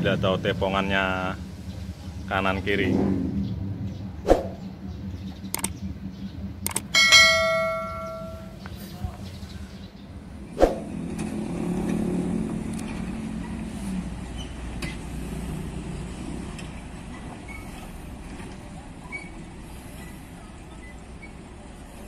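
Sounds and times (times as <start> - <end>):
steady low hum: 0.0 - 11.2
sharp clicks: 5.5 - 5.8, 6.6 - 6.9
metallic bell-like ding: 6.9 - 8.6.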